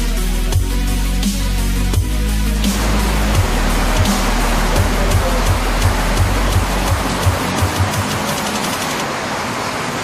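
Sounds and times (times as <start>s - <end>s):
electronic dance music: 0.0s - 9.0s.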